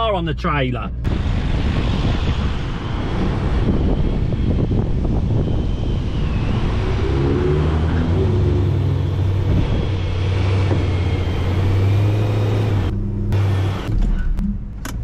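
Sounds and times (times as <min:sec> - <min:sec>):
car engine running low: 0:00.9 - 0:15.0
wind buffeting microphone: 0:01.0 - 0:12.9.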